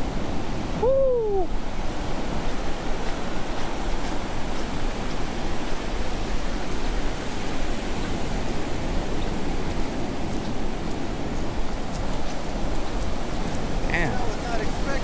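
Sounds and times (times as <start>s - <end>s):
ocean surf washing over sand: 0.0s - 15.0s
faint crackling ticks: 9.6s - 13.8s.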